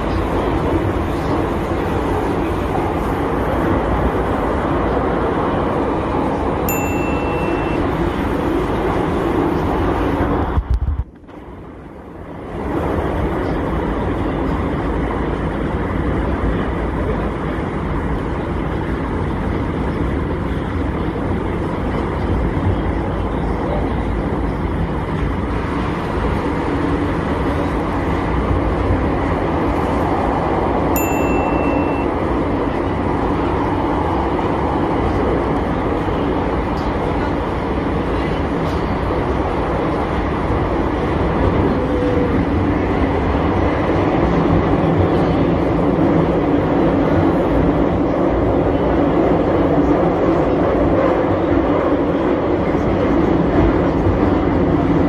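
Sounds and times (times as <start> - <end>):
metro train rumbling: 0.0 - 55.0
short high beep: 6.7 - 8.0, 31.0 - 32.2.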